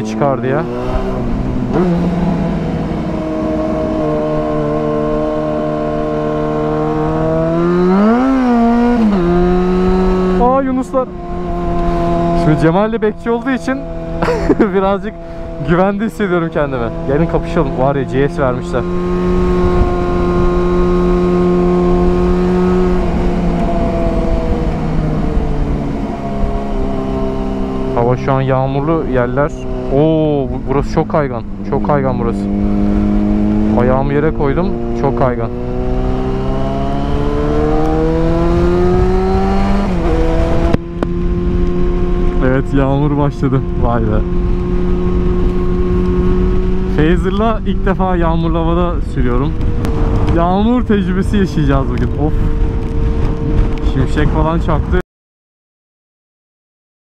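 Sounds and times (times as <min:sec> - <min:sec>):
wind and road rush: 0:00.0 - 0:55.0
motorcycle engine running: 0:00.7 - 0:55.0.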